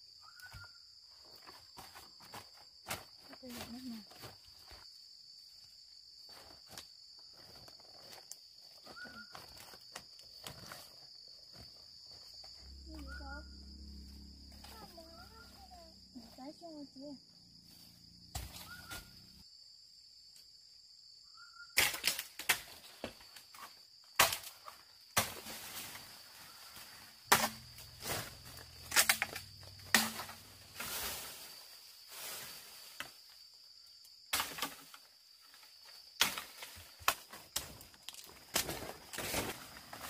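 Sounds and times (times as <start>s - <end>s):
high insect buzz: 8.1s - 40.0s.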